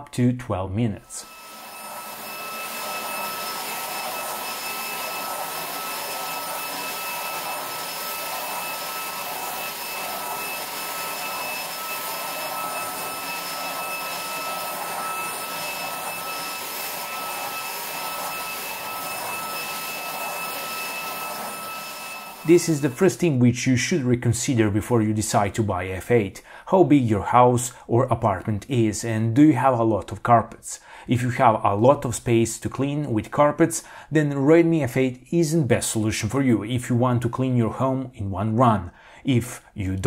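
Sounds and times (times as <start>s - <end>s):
vacuum cleaner running on rug: 1.2s - 23.0s.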